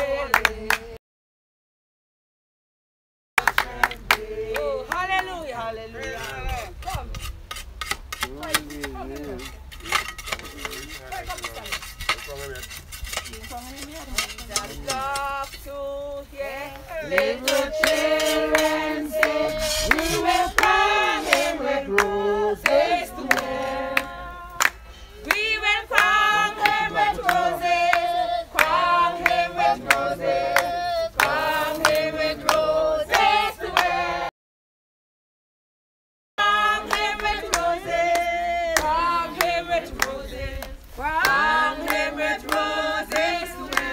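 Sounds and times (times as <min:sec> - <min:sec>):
group singing: 0:00.0 - 0:01.0, 0:03.4 - 0:06.4, 0:14.6 - 0:34.3, 0:36.4 - 0:43.9
hand-clapping: 0:00.3 - 0:01.0, 0:03.4 - 0:05.3, 0:17.1 - 0:34.0, 0:36.6 - 0:43.9.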